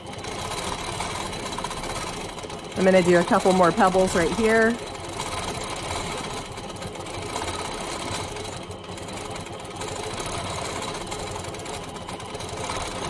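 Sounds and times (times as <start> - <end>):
quilting machine stitching: 0.0 - 13.0.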